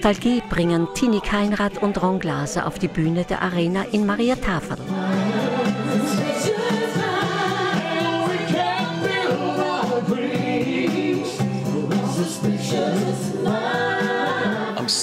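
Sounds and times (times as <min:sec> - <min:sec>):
woman singing: 0:00.0 - 0:14.8
backing music with bass line: 0:02.8 - 0:15.0
man singing: 0:08.2 - 0:13.6, 0:14.7 - 0:15.0.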